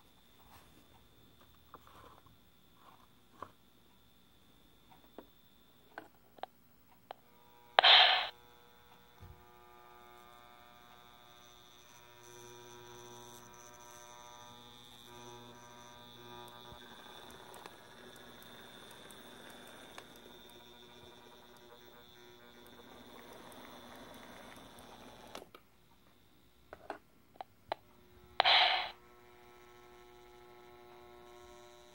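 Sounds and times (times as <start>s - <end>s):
electric motor humming: 7.3s - 25.5s, 27.8s - 31.9s
brief loud burst: 7.8s - 8.3s.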